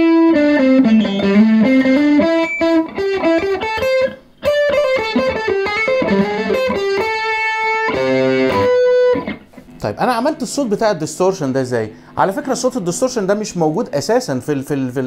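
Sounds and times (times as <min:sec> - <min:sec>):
distorted electric guitar lead: 0:00.0 - 0:10.0.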